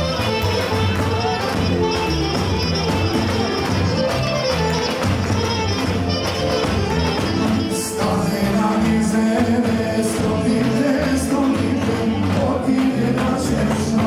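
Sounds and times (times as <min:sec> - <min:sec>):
folk band playing dance music: 0:00.0 - 0:14.0
bass drum beaten with stick: 0:06.7 - 0:14.0
person singing: 0:07.4 - 0:14.0.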